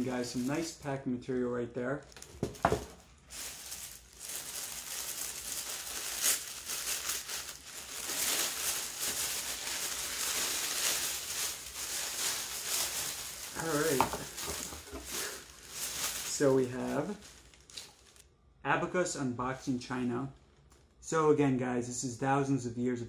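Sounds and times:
tissue paper crinkling and rustling: 0:00.0 - 0:00.8, 0:02.1 - 0:18.2.

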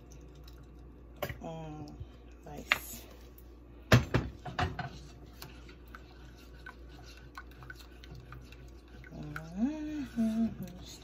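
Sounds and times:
spatula scraping saucepan: 0:04.4 - 0:11.0.

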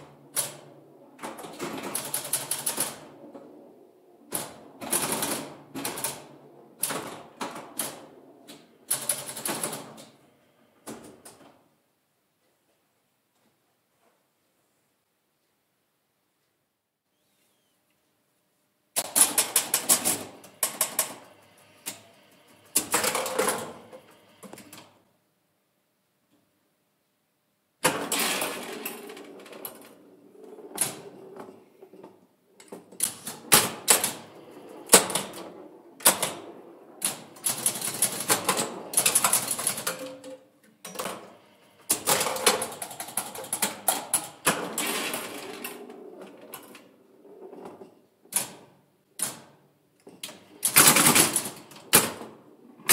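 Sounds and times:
pinball flippers and bumpers clacking: 0:00.1 - 0:03.5, 0:19.0 - 0:24.9, 0:27.8 - 0:52.9.

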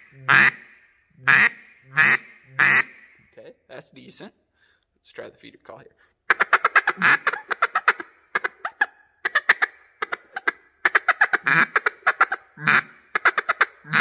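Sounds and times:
duck call clucking: 0:00.0 - 0:03.2, 0:06.3 - 0:14.0.

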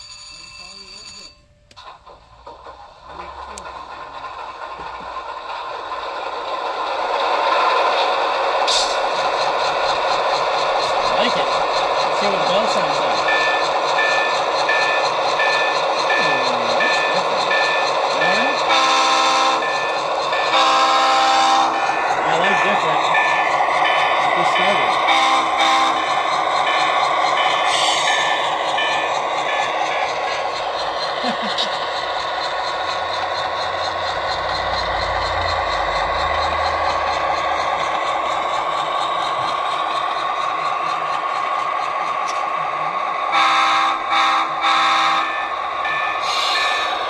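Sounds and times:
locomotive bell ringing: 0:00.0 - 0:01.7, 0:09.9 - 0:40.8
diesel engine sound: 0:01.7 - 0:47.0
chord horn blasts: 0:43.3 - 0:45.3.

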